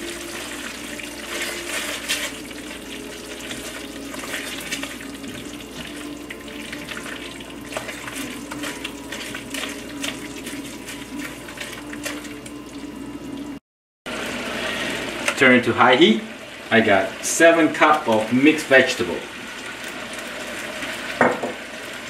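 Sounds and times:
spatula stirring thick sauce: 0.1s - 12.4s
spatula scraping metal pot: 0.9s - 5.0s.

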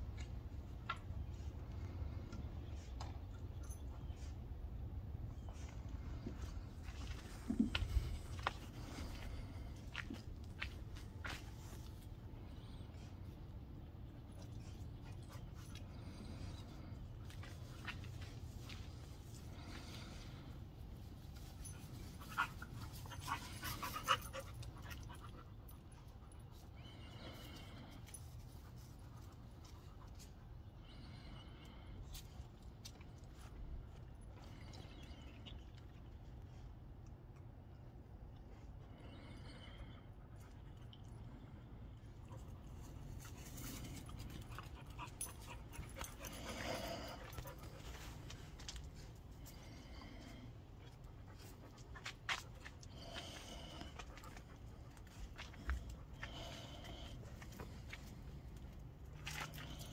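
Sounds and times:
dog panting: 42.1s - 50.0s.

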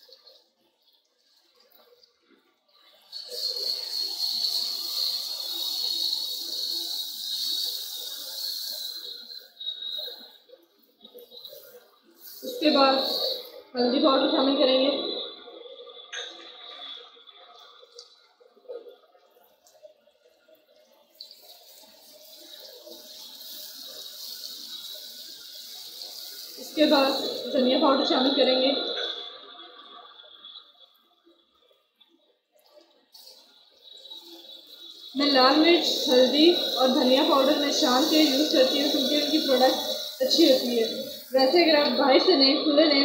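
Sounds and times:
hot oil sizzling: 2.7s - 15.2s, 19.8s - 30.6s, 33.1s - 42.5s.

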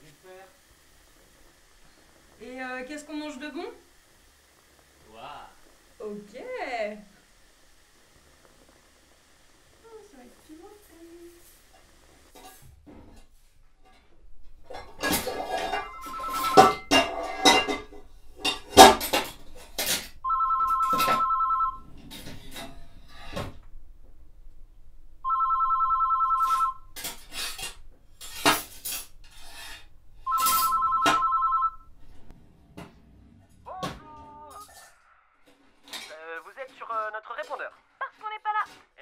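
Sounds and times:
cordless phone ringing: 15.7s - 16.9s, 20.2s - 21.9s, 25.2s - 27.0s, 30.2s - 31.9s.

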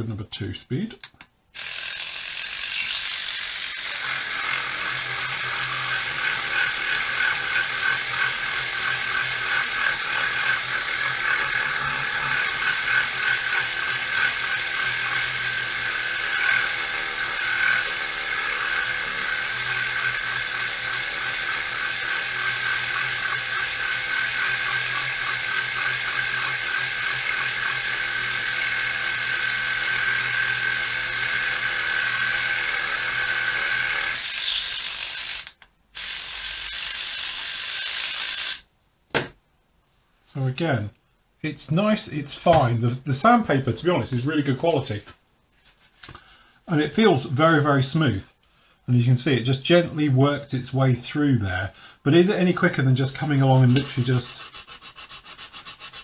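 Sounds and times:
sander motor buzzing: 1.6s - 38.6s
sanding tip stroking over paint: 53.0s - 56.0s.

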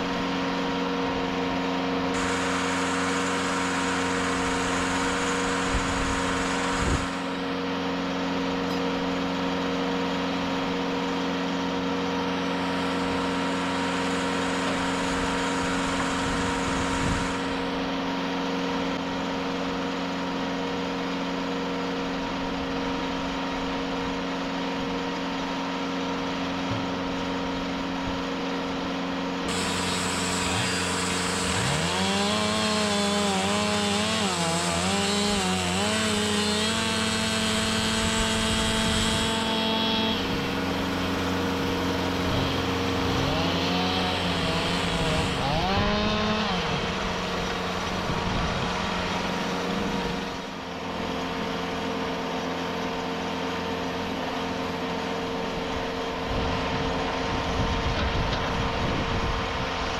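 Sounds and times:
band saw cutting log: 0.0s - 20.4s, 24.5s - 52.8s
sawmill engine hum: 0.0s - 59.9s.

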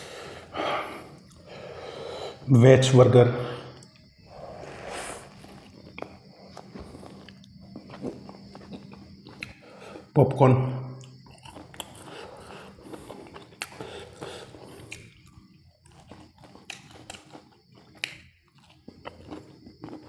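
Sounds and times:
chewing crispy fried chicken: 3.7s - 10.2s, 11.0s - 20.0s.

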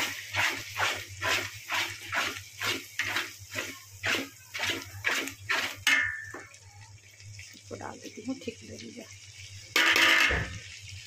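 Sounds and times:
metal spatula scraping a pan: 0.0s - 6.4s, 9.7s - 10.5s
oil sizzling: 0.0s - 11.0s.

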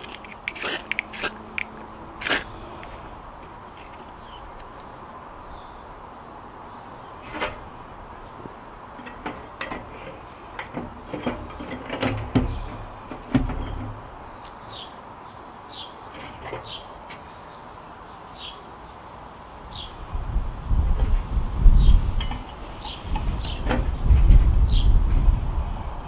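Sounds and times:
birds chirping: 0.0s - 20.1s, 21.3s - 25.0s
clicks and knocks on metal stove: 22.2s - 23.9s.

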